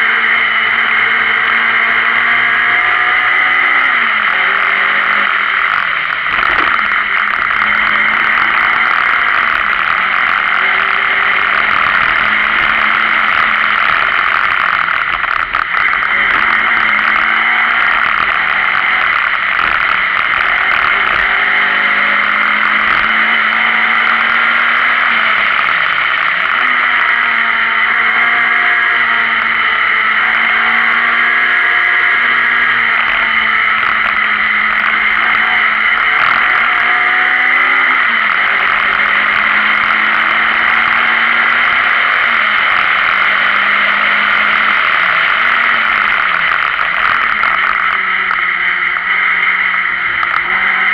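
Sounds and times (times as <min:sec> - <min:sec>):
rally car engine revving: 0:00.0 - 0:50.9.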